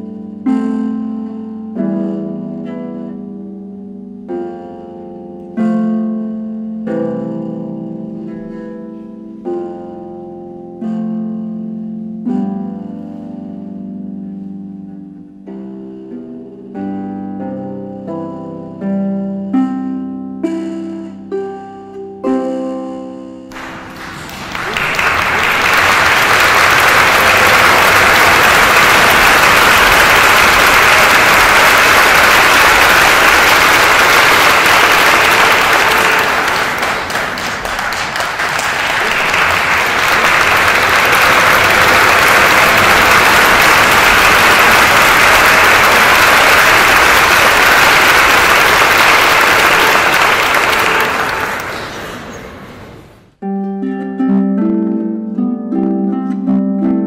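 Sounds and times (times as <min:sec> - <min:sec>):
audience applauding: 0:23.5 - 0:52.7.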